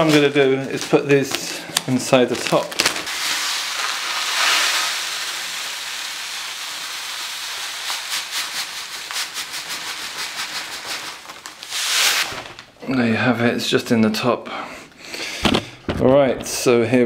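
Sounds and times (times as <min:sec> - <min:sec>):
granules pouring into filter: 0:02.2 - 0:12.6.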